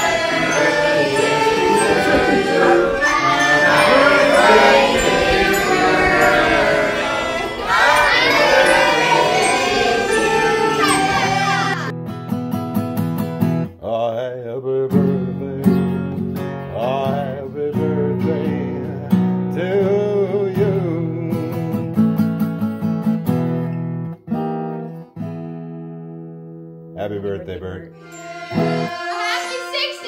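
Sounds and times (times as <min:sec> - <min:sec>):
person singing: 0:00.0 - 0:11.9, 0:28.0 - 0:30.0
acoustic guitar strumming: 0:00.0 - 0:13.8, 0:28.0 - 0:30.0.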